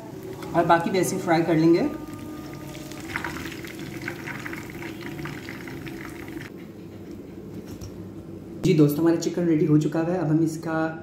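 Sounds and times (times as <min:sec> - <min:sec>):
chicken deep-frying in oil: 0:00.0 - 0:06.5.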